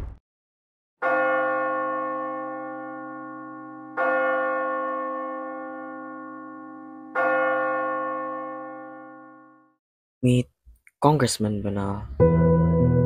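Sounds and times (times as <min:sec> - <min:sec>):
church bell tolling: 0:01.0 - 0:09.8.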